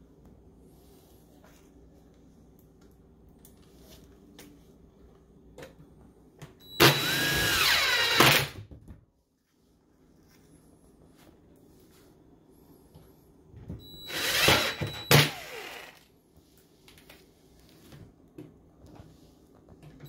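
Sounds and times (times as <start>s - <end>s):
cordless driver motor whine: 6.8s - 8.5s, 13.9s - 16.0s.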